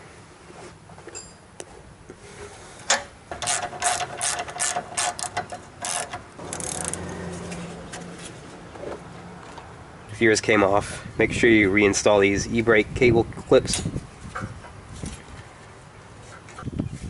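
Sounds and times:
socket ratchet clicking: 0:03.3 - 0:07.1.

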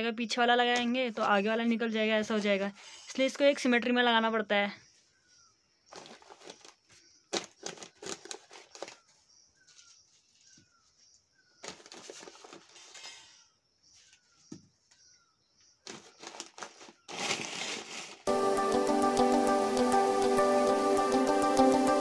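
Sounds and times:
newspaper crinkling and rustling: 0:05.9 - 0:13.3, 0:15.8 - 0:18.3.

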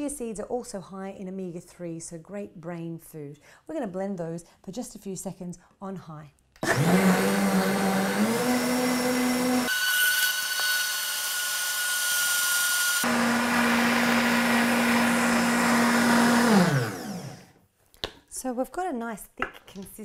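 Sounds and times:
blender motor running: 0:06.6 - 0:17.6.

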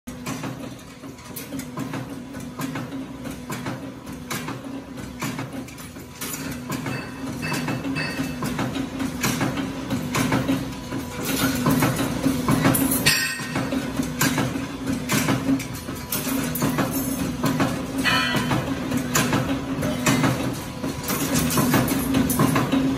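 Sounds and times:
machinery humming: 0:00.1 - 0:22.9
metallic clicks and clanks: 0:00.1 - 0:22.9.

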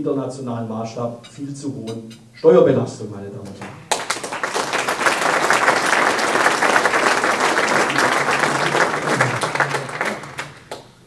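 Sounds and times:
audience applauding: 0:03.6 - 0:11.0.

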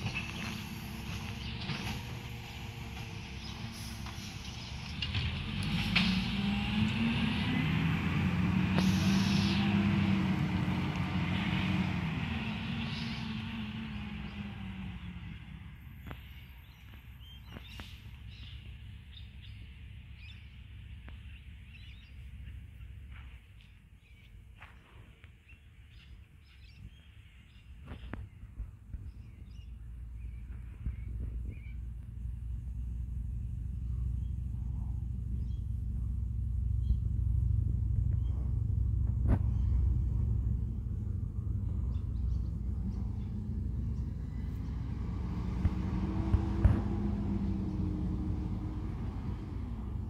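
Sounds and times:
birds chirping: 0:00.0 - 0:05.5, 0:06.3 - 0:37.4, 0:38.0 - 0:50.0
low steady rumble: 0:00.0 - 0:50.0.

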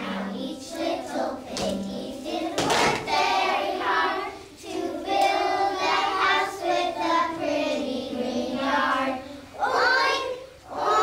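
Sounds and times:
children singing together: 0:00.0 - 0:11.0.

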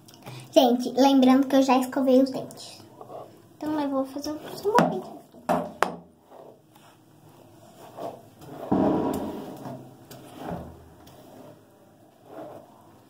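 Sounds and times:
sharp knocks: 0:08.7 - 0:10.8.

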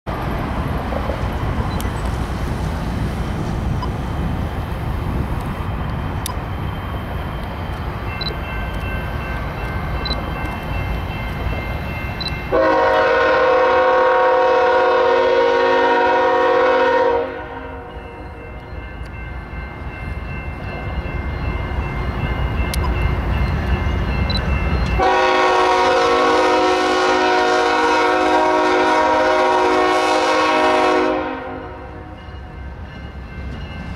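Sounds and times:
locomotive air horn blasts: 0:12.5 - 0:17.9, 0:25.0 - 0:32.2.

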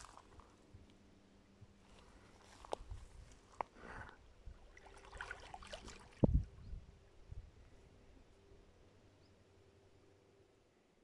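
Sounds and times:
dog paddling in water: 0:04.6 - 0:06.2
water plop: 0:04.7 - 0:06.4.

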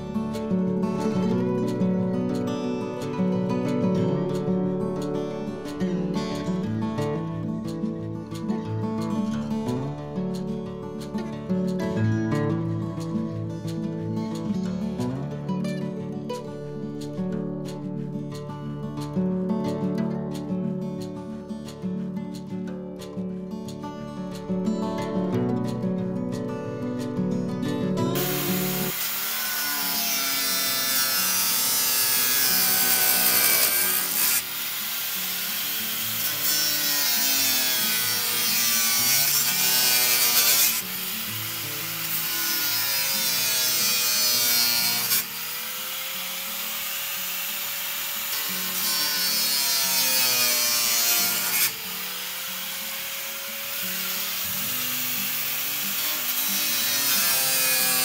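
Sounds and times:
saw cutting: 0:28.1 - 0:58.0.

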